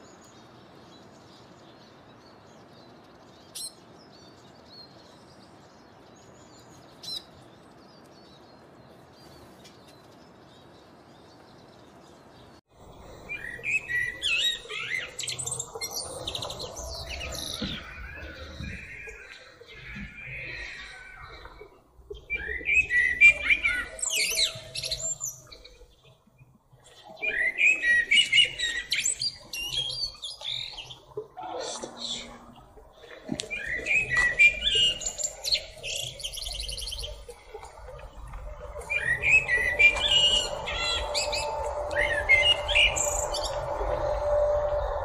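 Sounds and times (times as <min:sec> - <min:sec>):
blackbird singing: 0:13.3 - 0:26.1, 0:27.1 - 0:32.5, 0:33.4 - 0:37.3, 0:38.8 - 0:45.0.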